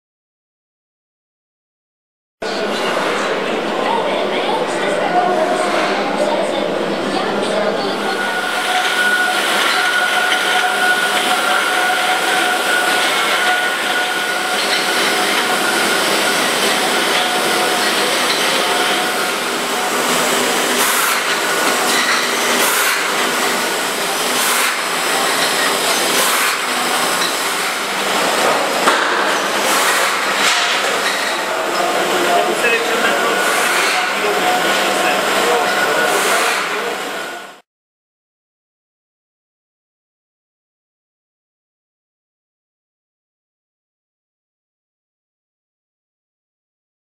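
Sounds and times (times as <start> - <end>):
bottling line machinery: 2.4 - 37.6.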